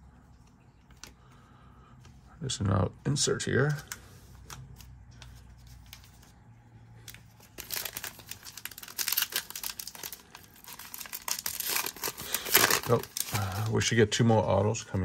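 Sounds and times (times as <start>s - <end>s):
foil wrapper crinkling and tearing: 7.0s - 14.2s.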